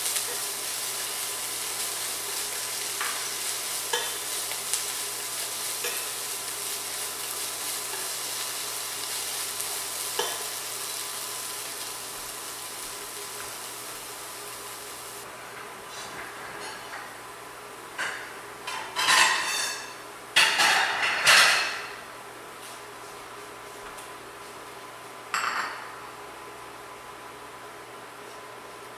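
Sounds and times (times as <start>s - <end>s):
vegetables sizzling in a pot: 0.0s - 15.3s.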